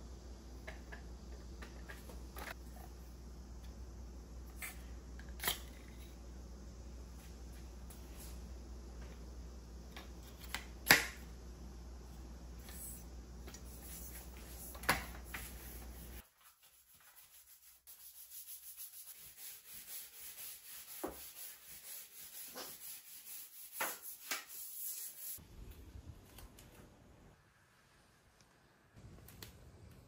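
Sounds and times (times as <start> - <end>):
low steady hum: 0.0 - 16.2
brush scrubbing tiled floor: 13.6 - 25.4.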